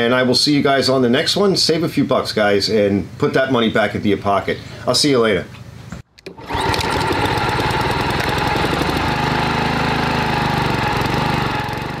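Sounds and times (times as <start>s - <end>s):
lawn mower engine running: 6.2s - 12.0s.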